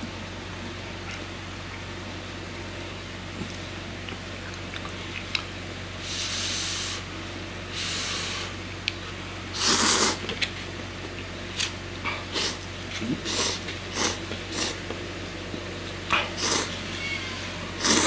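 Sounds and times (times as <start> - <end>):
person slurping noodles: 9.5 - 10.2, 12.3 - 14.8, 16.2 - 16.8, 17.8 - 18.0.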